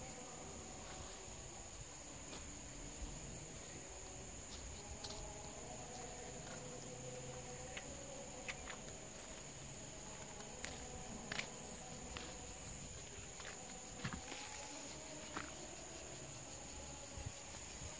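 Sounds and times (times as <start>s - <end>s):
high-pitched insect drone: 0.0s - 17.9s
faint footsteps: 2.2s - 3.2s, 4.0s - 15.8s.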